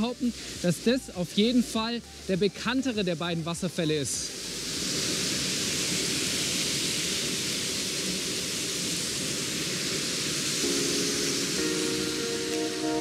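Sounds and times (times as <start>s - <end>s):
background music: 0.0s - 4.8s, 10.6s - 13.0s
waterfall rushing: 0.0s - 13.0s.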